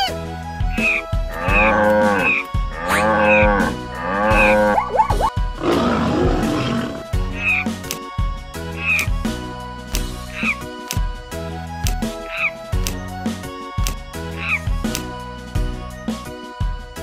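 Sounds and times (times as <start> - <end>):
light background music: 0.0 - 17.0
cartoon animal calls: 4.3 - 7.7.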